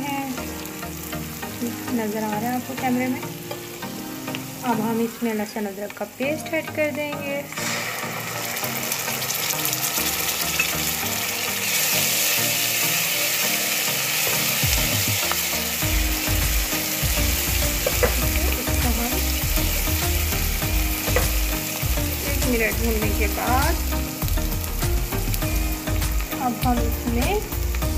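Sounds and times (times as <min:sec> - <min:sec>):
paste sizzling in hot oil: 0:00.0 - 0:27.9
spoon stirring and scraping pan: 0:17.5 - 0:18.7.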